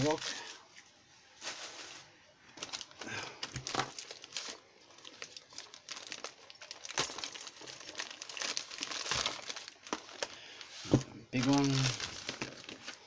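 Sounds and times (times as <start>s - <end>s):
paper crinkling and rustling: 0.0s - 13.0s.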